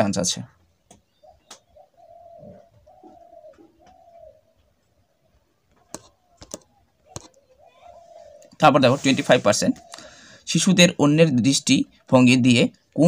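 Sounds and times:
pigeon cooing: 1.0 - 10.5
sharp clicks: 5.7 - 7.4.

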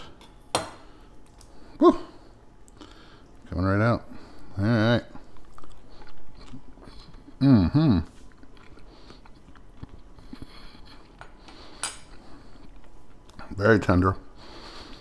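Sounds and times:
man humming: 1.8 - 2.2, 7.4 - 8.2
man chewing: 2.6 - 3.4, 5.1 - 13.6, 14.4 - 15.0.

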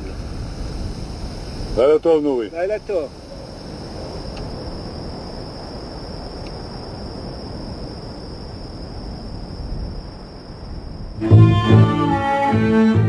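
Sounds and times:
cricket trilling: 0.0 - 13.0
low background noise: 0.0 - 13.0
bowed-string music with cello: 11.2 - 13.0.

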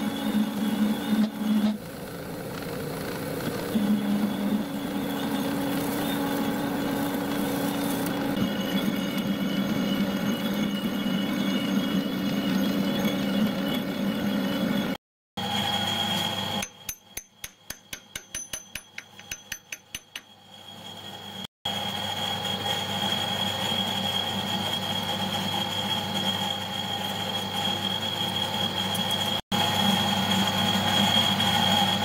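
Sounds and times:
lathe humming and whining: 0.0 - 16.9, 19.0 - 32.0.

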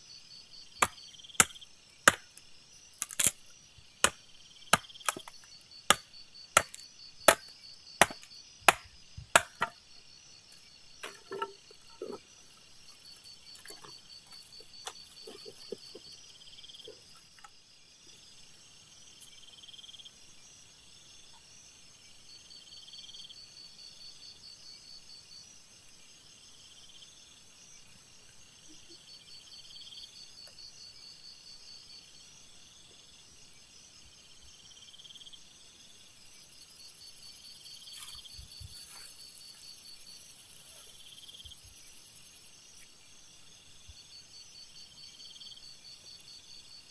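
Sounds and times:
insects chirping: 0.0 - 46.9
blade chopping wood: 0.8 - 2.4, 3.0 - 3.4, 4.0 - 9.8, 11.0 - 12.2
soft knocks and handling: 11.0 - 12.2.

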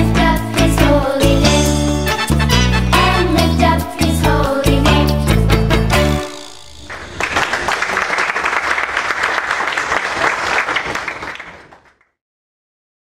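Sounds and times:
audience applauding: 6.4 - 12.2.

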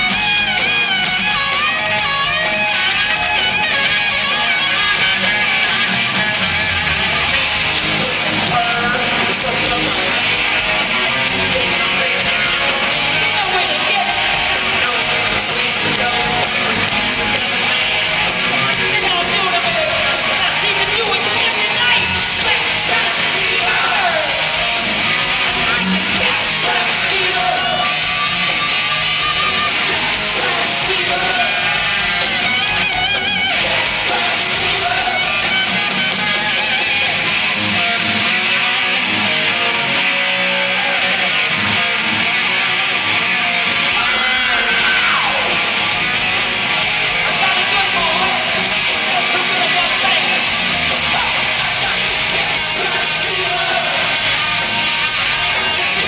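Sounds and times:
bass guitar: 0.0 - 56.0
distorted electric guitars: 0.0 - 56.0
drums: 0.0 - 56.0.

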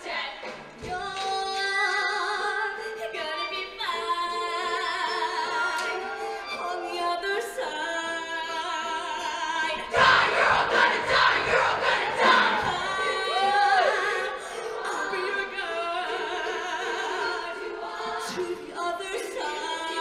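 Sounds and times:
choir singing sustained chords: 8.9 - 20.0.

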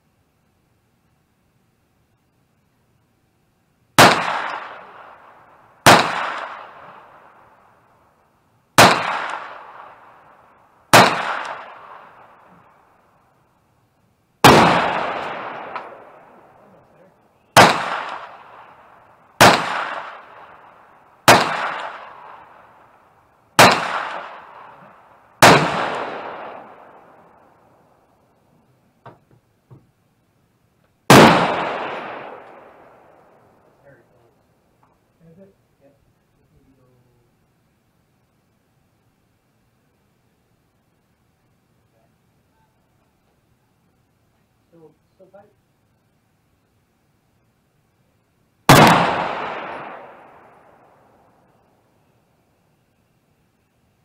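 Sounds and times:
rifle shots with long echo: 4.0 - 13.1, 14.4 - 28.4, 31.1 - 34.3, 48.6 - 52.1.

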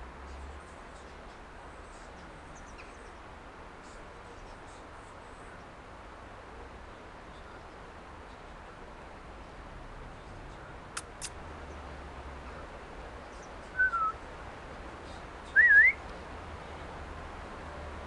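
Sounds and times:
whistled notes: 13.8 - 14.2, 15.6 - 16.0.

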